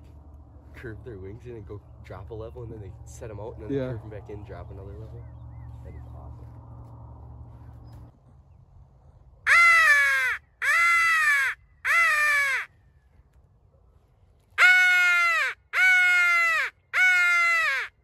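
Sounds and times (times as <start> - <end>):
crow call caws: 9.5 - 12.8, 14.6 - 18.0.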